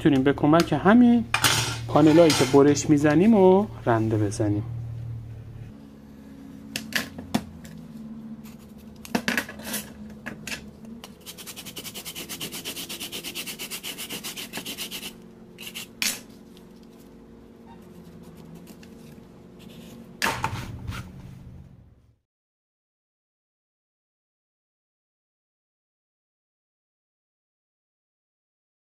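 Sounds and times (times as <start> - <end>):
metal rasp scraping drywall: 11.1 - 16.2.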